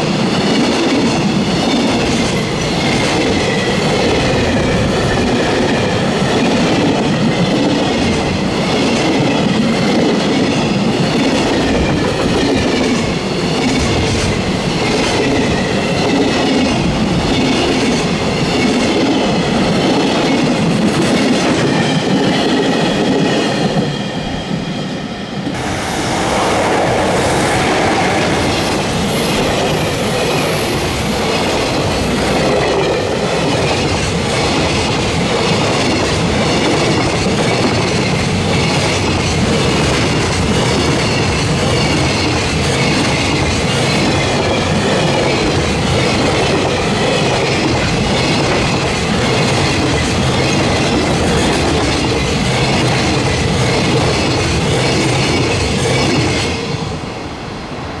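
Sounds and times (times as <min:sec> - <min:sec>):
freight train wheels rushing on rails: 0:00.0 - 0:58.0.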